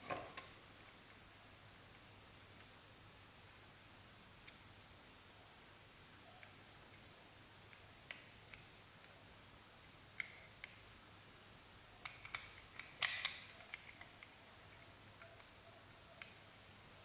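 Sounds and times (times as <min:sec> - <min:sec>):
toy truck plastic clicks and snaps: 0:10.2 - 0:10.8, 0:12.0 - 0:15.5.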